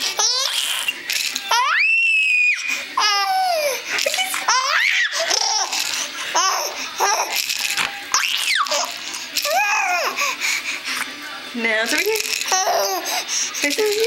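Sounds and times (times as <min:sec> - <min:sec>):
baby laughing: 0:00.0 - 0:00.9, 0:02.6 - 0:07.4, 0:08.1 - 0:10.4, 0:12.4 - 0:13.2.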